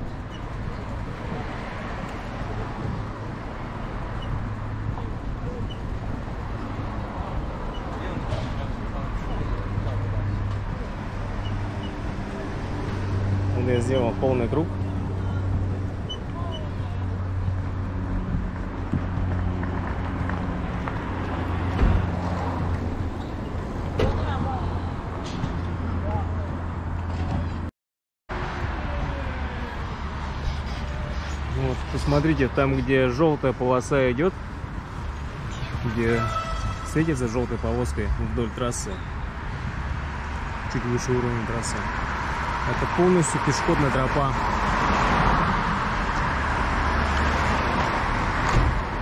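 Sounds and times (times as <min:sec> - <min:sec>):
road traffic rumble: 0:00.0 - 0:27.7, 0:28.3 - 0:49.0
thump: 0:21.7 - 0:22.1, 0:48.4 - 0:48.8.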